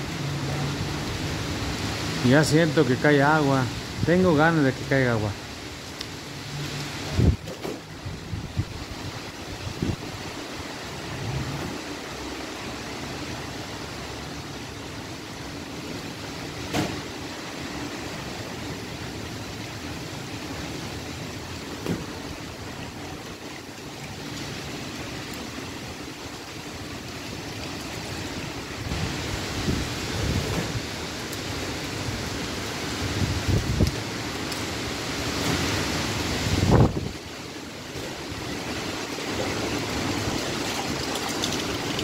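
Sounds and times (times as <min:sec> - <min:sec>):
strong wind through trees: 0:00.0 - 0:42.0.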